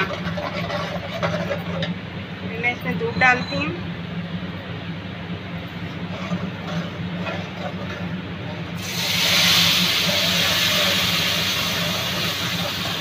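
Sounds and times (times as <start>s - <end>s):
food sizzling in a pan: 8.8s - 13.0s
milk hissing in hot pan: 8.8s - 13.0s.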